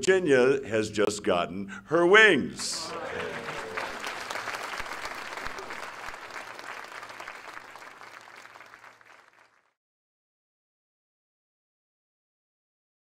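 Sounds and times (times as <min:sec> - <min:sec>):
audience applauding: 0:02.6 - 0:09.8.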